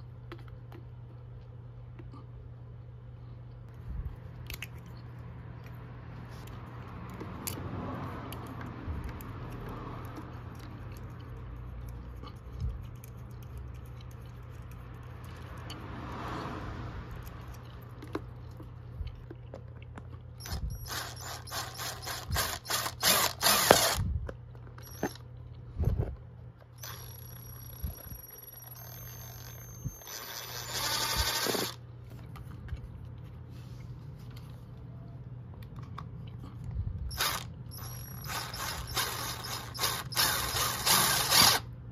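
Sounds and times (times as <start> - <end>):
electric drill boring plastic: 20.4 - 24.0, 24.8 - 25.2, 26.8 - 31.8, 37.1 - 41.7.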